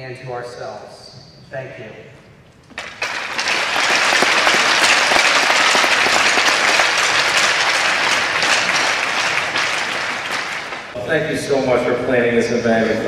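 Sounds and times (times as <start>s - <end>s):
audience applauding: 2.7s - 11.0s.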